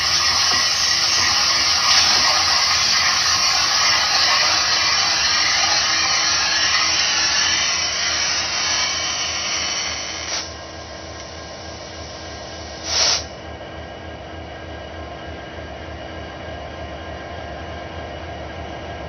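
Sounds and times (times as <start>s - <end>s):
diesel locomotive moving: 0.0s - 16.5s
loud hiss of air: 6.0s - 13.4s
sharp blast of air: 12.6s - 13.4s.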